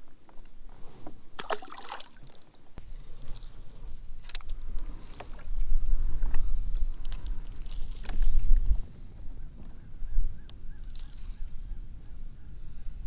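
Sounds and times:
fish splash: 1.4 - 2.4
wind rumbling on microphone: 2.8 - 13.0.

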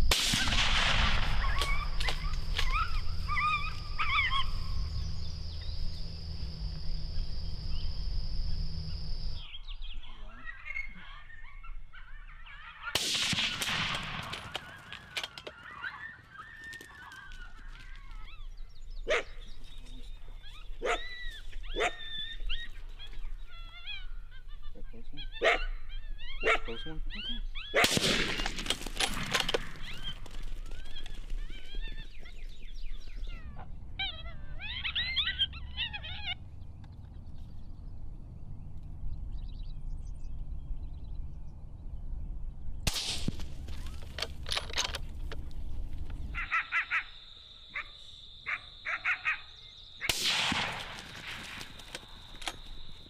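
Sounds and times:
rifle shots: 0.0 - 3.1, 13.0 - 15.3, 27.8 - 30.0, 42.9 - 45.1, 50.1 - 53.0
crickets trilling: 0.0 - 9.5, 43.2 - 53.0
high wavering animal calls: 1.2 - 13.0, 14.6 - 27.8, 29.8 - 36.7, 46.2 - 49.8.

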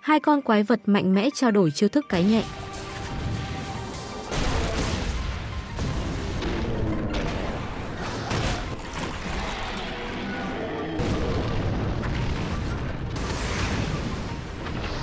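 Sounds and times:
film soundtrack music: 0.0 - 15.0
heavy rumbling booms and crashes: 11.0 - 14.9.

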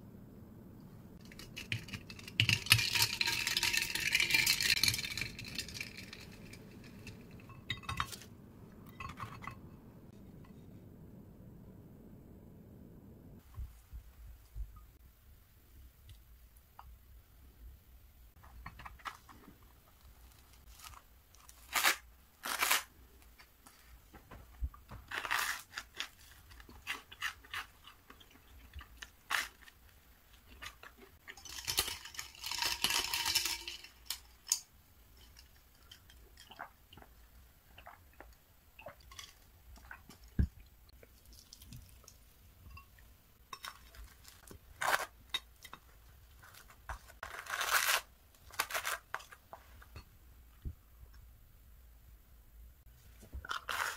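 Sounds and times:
toast crunching and chewing: 25.1 - 34.6.

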